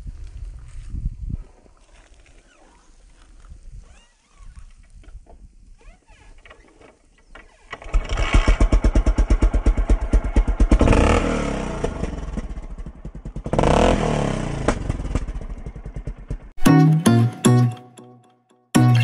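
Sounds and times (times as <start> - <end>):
dirt bike engine revving: 7.8 - 12.8, 13.4 - 15.2.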